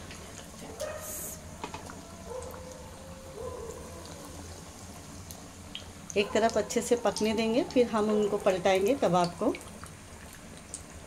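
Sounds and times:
kebabs sizzling in hot oil: 3.4s - 11.0s.

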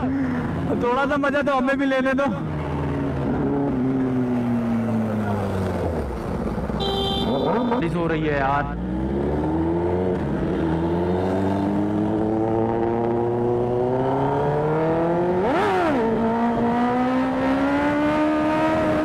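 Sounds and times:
motorcycle engine accelerating: 8.7s - 19.0s.

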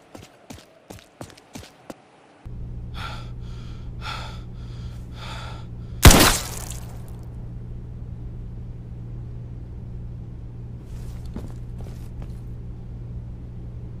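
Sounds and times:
low ambient hum: 0.0s - 14.0s
faint rustles: 10.8s - 12.6s.

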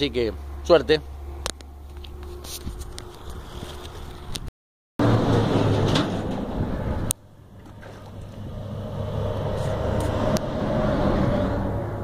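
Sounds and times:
vehicle rumbling over bridge: 5.0s - 12.0s.

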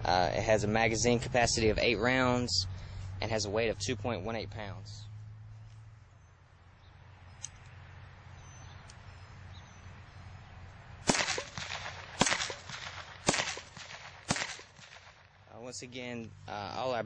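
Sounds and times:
blank gunshots with echo: 11.0s - 15.3s.

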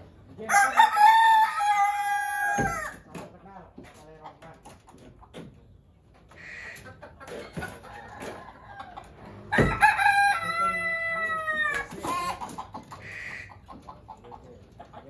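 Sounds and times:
rooster crowing: 0.5s - 3.0s, 7.9s - 12.3s
hens clucking softly: 3.2s - 9.5s, 11.2s - 15.0s.

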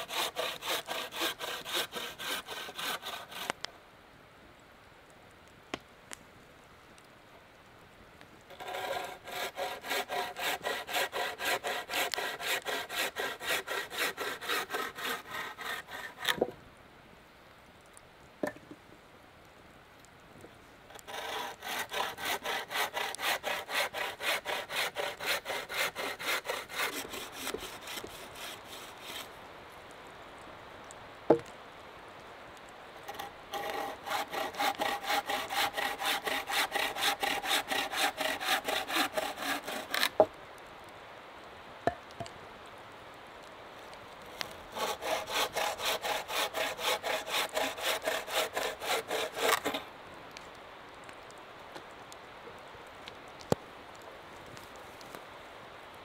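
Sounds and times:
hand saw cutting wood: 0.0s - 3.6s, 8.5s - 16.5s, 20.9s - 29.3s, 33.0s - 40.3s, 44.3s - 49.8s.

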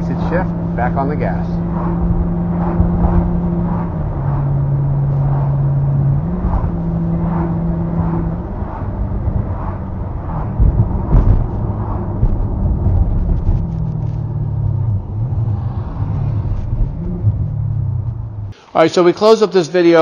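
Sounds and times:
car engine running: 0.0s - 18.6s
low thumps: 0.0s - 18.6s
road noise: 0.0s - 19.1s.

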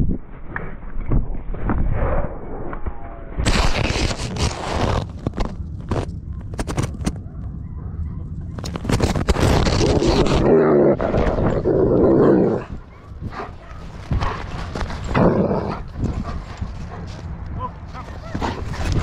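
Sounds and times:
fur and harness rubbing microphone: 3.4s - 7.2s, 8.5s - 19.0s
dogs growling and vocalising: 7.6s - 19.0s.

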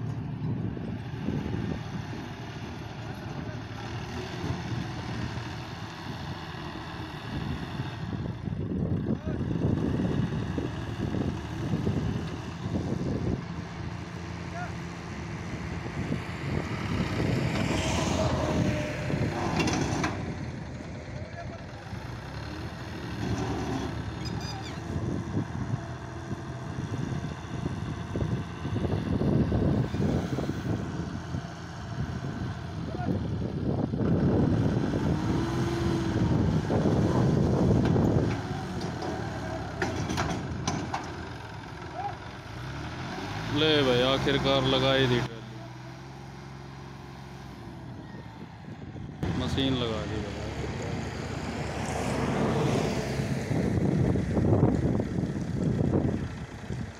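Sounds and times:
tractor engine under load: 0.0s - 56.9s
wind buffeting microphone: 0.2s - 2.8s, 7.2s - 14.4s, 15.0s - 21.1s, 24.8s - 39.8s, 47.7s - 49.8s, 50.5s - 56.9s.

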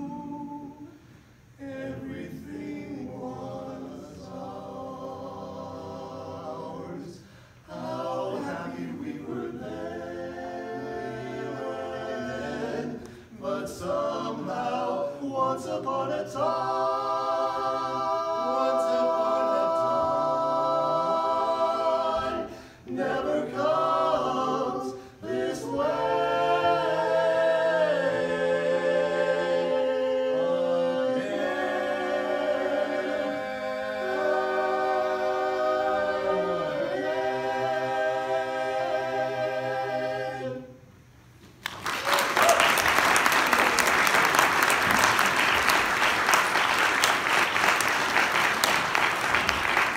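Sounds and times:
male quartet singing a cappella: 0.0s - 40.9s
audience applauding: 41.6s - 49.9s.

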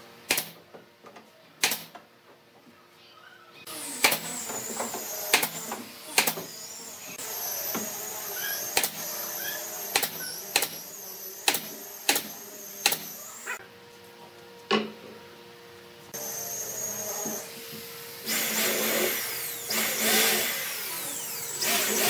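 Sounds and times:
nail gun firing into wood: 0.3s - 0.6s, 1.6s - 1.9s, 3.9s - 4.4s, 5.2s - 6.5s, 9.9s - 10.8s, 11.4s - 13.1s.

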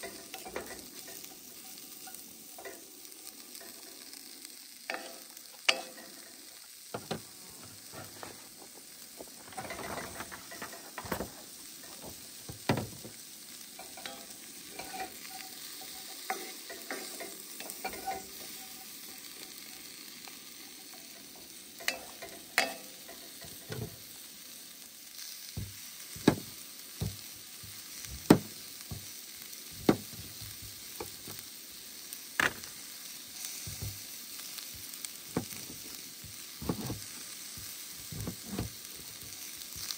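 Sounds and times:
wooden spatula scraping a pan: 0.0s - 2.8s, 4.9s - 13.2s, 13.8s - 19.4s, 25.6s - 29.1s, 29.7s - 31.4s, 34.7s - 39.9s
vegetables sizzling in a pan: 0.0s - 39.9s.

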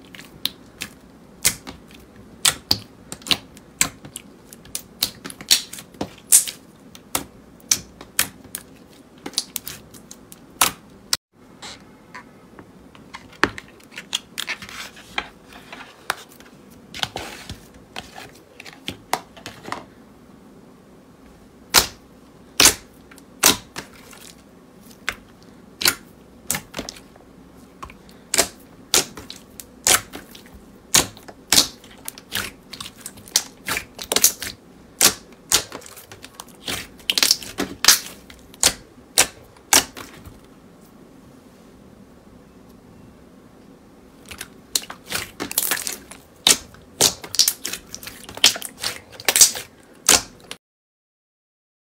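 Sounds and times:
slime clicking and popping: 44.3s - 50.4s.

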